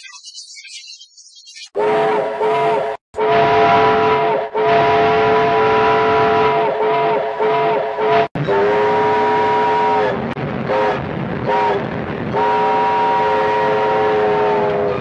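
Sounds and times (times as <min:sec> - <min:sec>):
steam whistle blasts: 0:01.8 - 0:15.0
steady rushing noise: 0:10.2 - 0:13.4.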